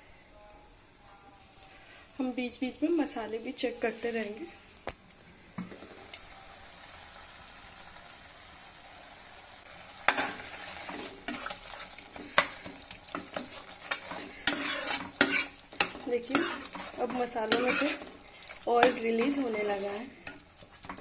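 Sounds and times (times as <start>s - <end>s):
sauce sizzling in oil: 5.6s - 21.0s
spatula scraping pan: 10.0s - 21.0s.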